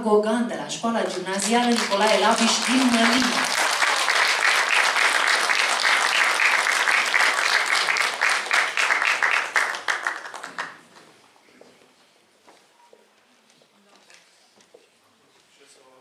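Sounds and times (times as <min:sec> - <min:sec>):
audience applauding: 0:01.0 - 0:11.1.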